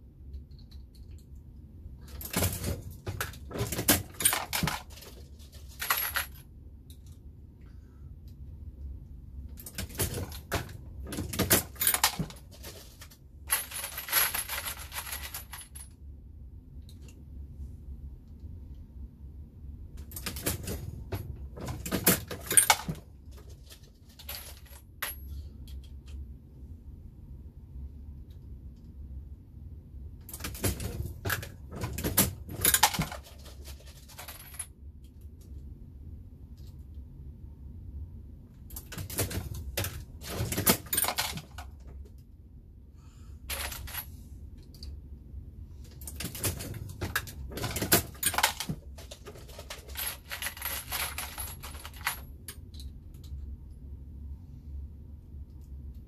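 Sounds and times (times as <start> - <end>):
reloading press clicking and clattering: 30.2 - 34.6, 46.0 - 52.2.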